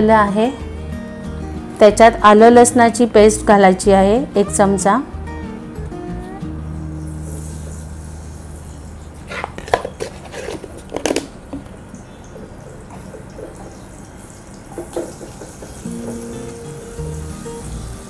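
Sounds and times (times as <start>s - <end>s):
paste frying in hot oil: 6.8s - 10.6s, 11.9s - 18.0s.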